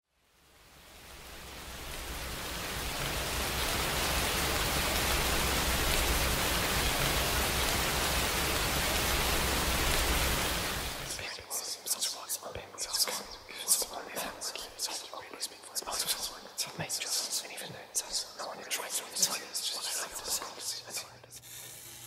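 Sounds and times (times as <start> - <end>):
heavy rain: 0.1 - 17.4.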